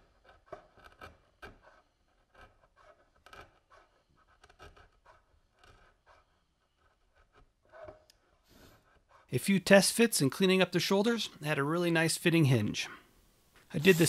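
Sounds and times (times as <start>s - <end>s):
router plane scraping wood: 0.0s - 9.4s, 13.7s - 14.0s.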